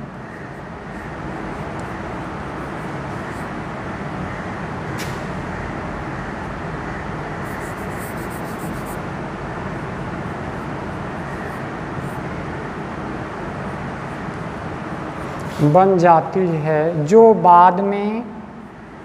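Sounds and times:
steady background noise: 0:00.0 - 0:19.0
chalk ticking on blackboard: 0:07.4 - 0:09.0.

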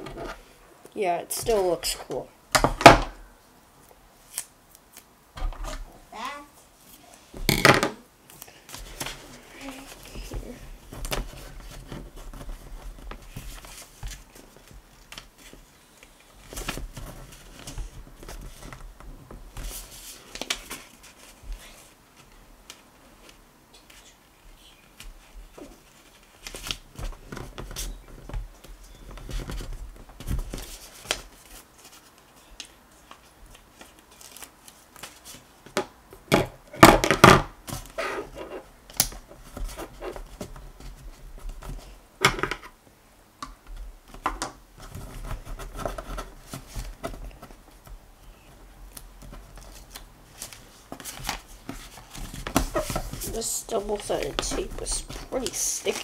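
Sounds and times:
paper rustling and crinkling: 0:08.3 - 0:24.2, 0:24.8 - 0:35.8, 0:44.1 - 0:56.0.

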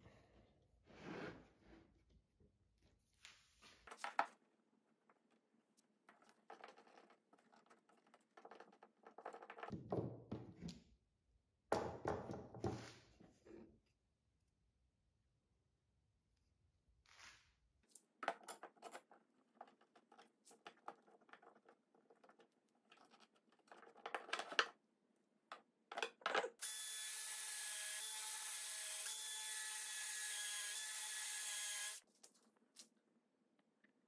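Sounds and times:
cordless drill boring into wood: 0:26.6 - 0:32.0.

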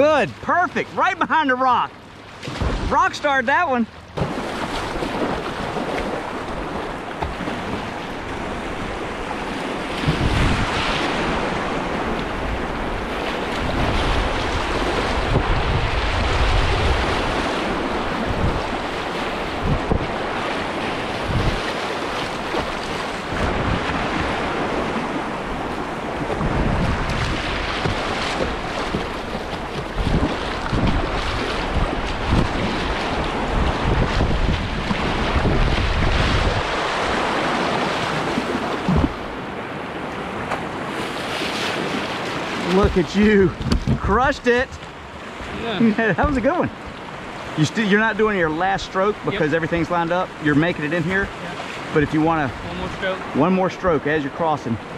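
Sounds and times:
wind buffeting microphone: 0:04.2 - 0:41.0, 0:41.6 - 0:47.6.

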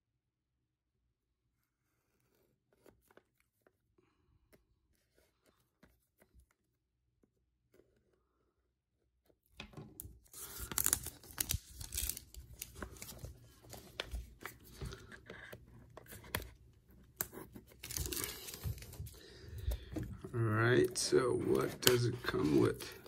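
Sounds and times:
plastic shrink-wrap crinkling and tearing: 0:10.2 - 0:13.3, 0:17.8 - 0:19.1.

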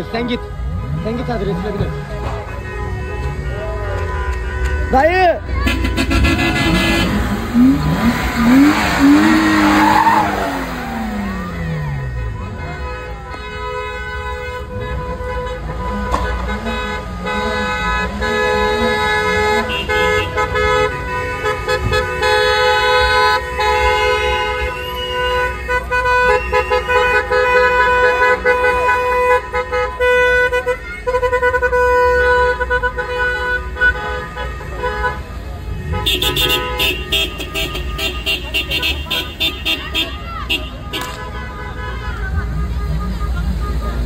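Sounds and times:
voices: 0:00.0 - 0:13.7, 0:34.3 - 0:44.0
car horns honking: 0:00.0 - 0:44.0.

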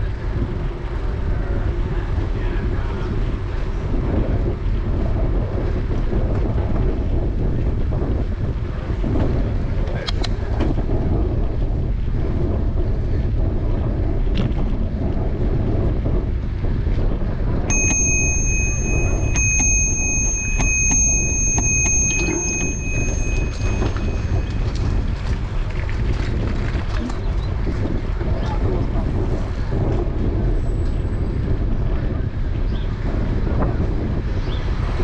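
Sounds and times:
wind rumble on microphone: 0:00.0 - 0:35.0
bicycle bell dinging: 0:17.7 - 0:25.4.

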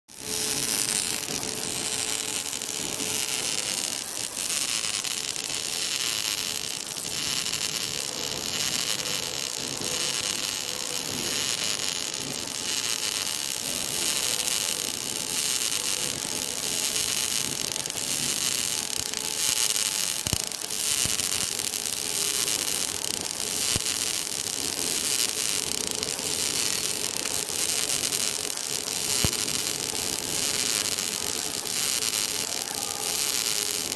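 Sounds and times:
welding arc hissing with spatter: 0:00.1 - 0:33.9.

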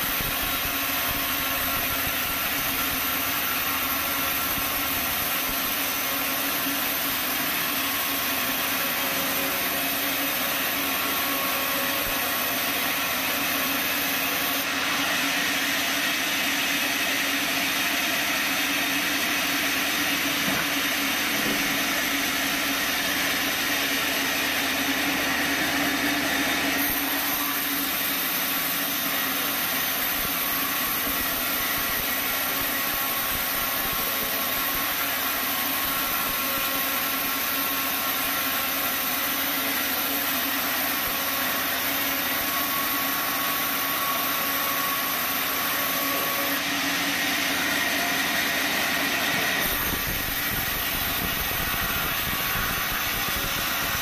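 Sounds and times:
band sawmill running: 0:00.0 - 0:54.0
saw blade cutting timber: 0:00.0 - 0:54.0.

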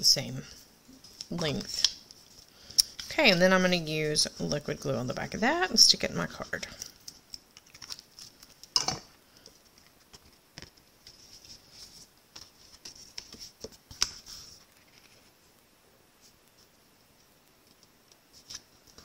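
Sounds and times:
paper rustling: 0:09.4 - 0:15.4.

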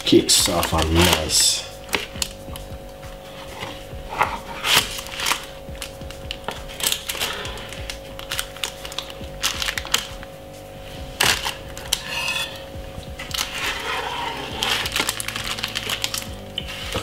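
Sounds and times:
knife scraping metal tin: 0:11.9 - 0:12.7, 0:13.4 - 0:15.2.

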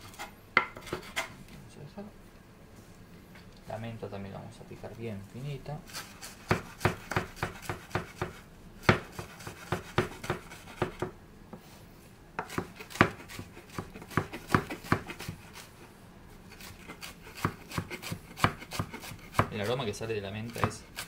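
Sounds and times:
knife chopping on wooden board: 0:00.1 - 0:01.3, 0:06.0 - 0:11.2, 0:12.4 - 0:15.7, 0:16.6 - 0:19.8, 0:20.4 - 0:21.0.

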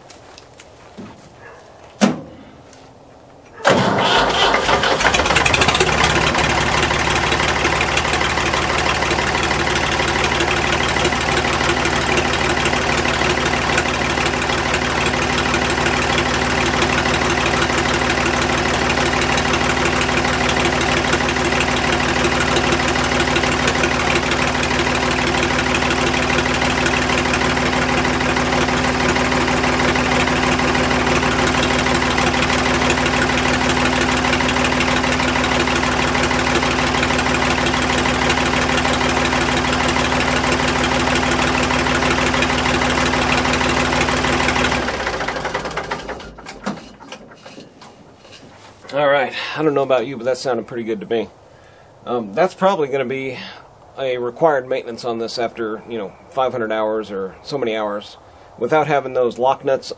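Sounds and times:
diesel engine running: 0:03.6 - 0:49.6.

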